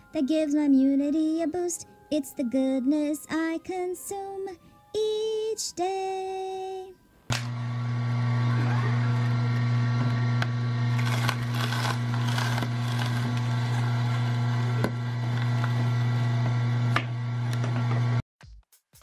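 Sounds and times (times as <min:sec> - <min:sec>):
juicer motor humming: 0:07.3 - 0:18.2
greens crackling and snapping: 0:10.9 - 0:13.7.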